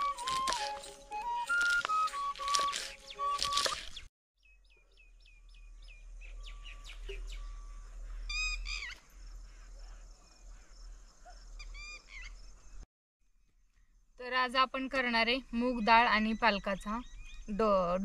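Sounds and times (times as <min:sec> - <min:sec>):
falling whistled bird notes: 0:00.0 - 0:04.0
birds chirping: 0:00.0 - 0:12.8.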